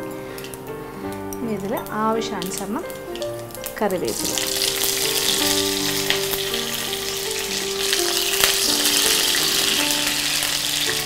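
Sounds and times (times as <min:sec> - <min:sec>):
seeds sizzling in hot oil: 0:00.0 - 0:11.0.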